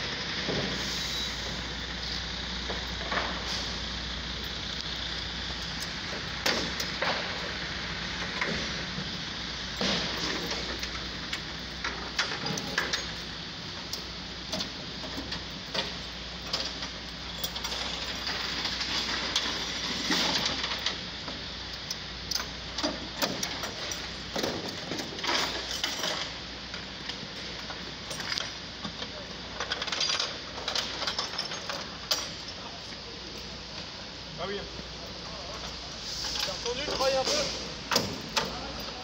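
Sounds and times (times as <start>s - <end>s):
low street hum: 0.0s - 39.0s
metallic clicks and clanks: 9.8s - 21.0s, 21.7s - 32.6s.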